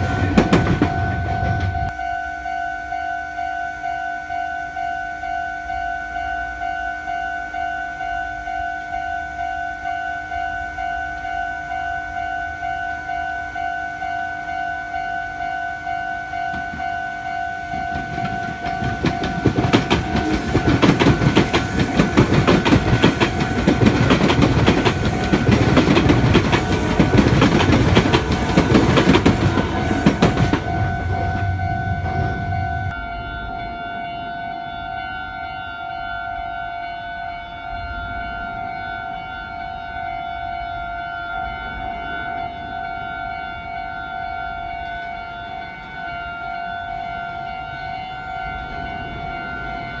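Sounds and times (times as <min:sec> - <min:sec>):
train wheels clattering on rails: 0:00.0 - 0:02.0, 0:16.4 - 0:33.0
level crossing bell ringing: 0:00.0 - 0:37.8.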